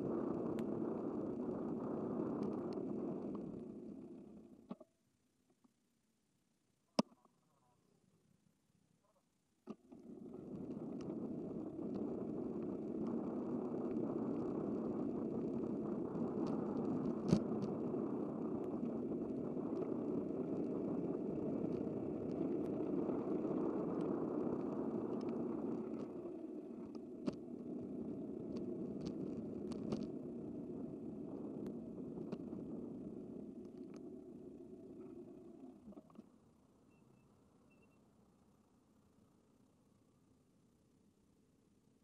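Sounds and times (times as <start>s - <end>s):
bicycle road noise: 0.0s - 4.6s, 9.9s - 36.1s.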